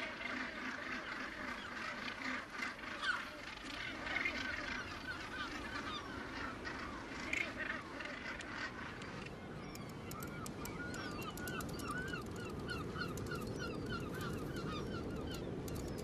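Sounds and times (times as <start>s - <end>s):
sharp clicks: 9.7s - 16.0s.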